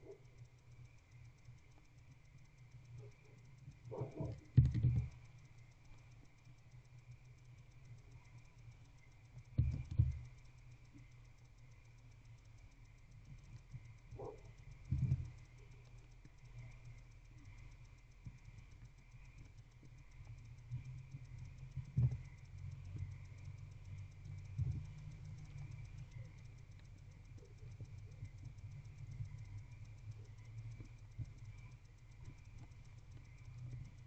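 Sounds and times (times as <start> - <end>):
faint high whine: 0.0 - 34.0
owl scratching and ticking: 0.0 - 34.0
steady low hum: 0.0 - 34.0
dull thumps: 9.6 - 10.3.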